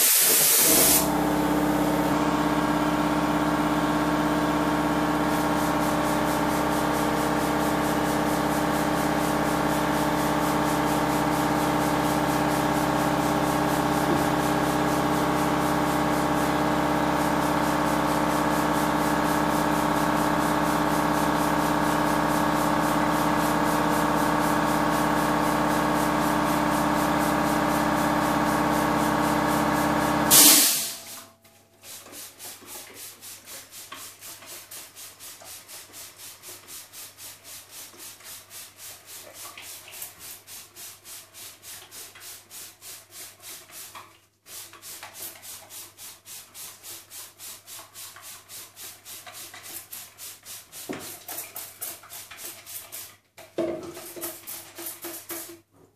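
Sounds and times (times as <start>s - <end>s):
spray bottle pumping: 0.0s - 1.0s, 31.8s - 53.3s, 53.9s - 55.6s
brief loud burst: 30.3s - 31.1s.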